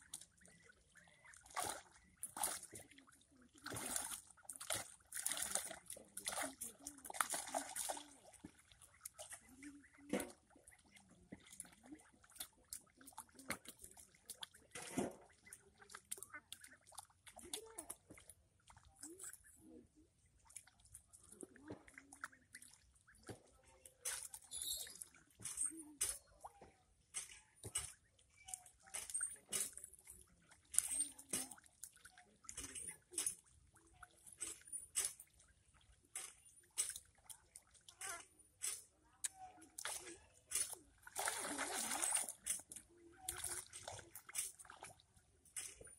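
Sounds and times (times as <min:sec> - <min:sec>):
ducklings soft low calls: 0:00.0 - 0:04.4, 0:08.8 - 0:14.2
ducklings dabbling in water: 0:00.0 - 0:45.9
loud splashes: 0:41.1 - 0:42.3.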